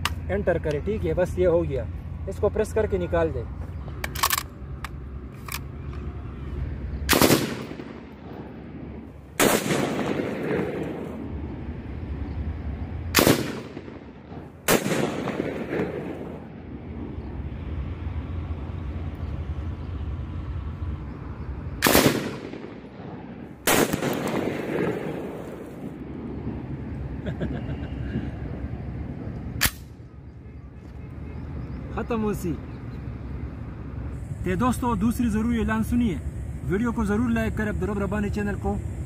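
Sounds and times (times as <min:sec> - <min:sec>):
machine gun shots echoing: 0:07.1 - 0:08.5, 0:09.4 - 0:11.1, 0:13.2 - 0:16.4, 0:21.8 - 0:25.4.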